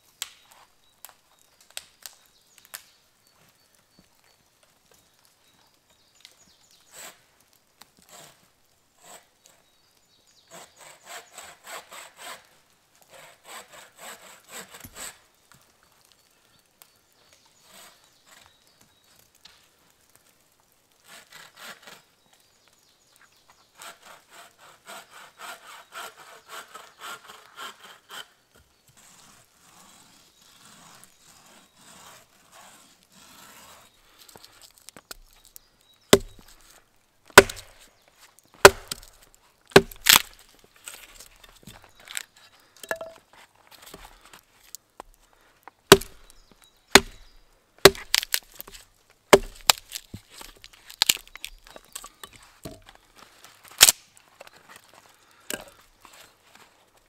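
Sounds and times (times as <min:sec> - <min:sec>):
sawing wood: 0:09.0 - 0:09.3, 0:10.5 - 0:15.2, 0:21.0 - 0:22.0, 0:23.8 - 0:28.3, 0:36.1 - 0:36.7, 0:37.4 - 0:37.9, 0:38.6 - 0:42.2, 0:45.9 - 0:46.3, 0:46.9 - 0:51.6
axe chopping wood: 0:36.1 - 0:36.6, 0:37.3 - 0:37.9, 0:38.6 - 0:40.4, 0:42.8 - 0:43.2, 0:45.9 - 0:46.3, 0:46.9 - 0:52.9.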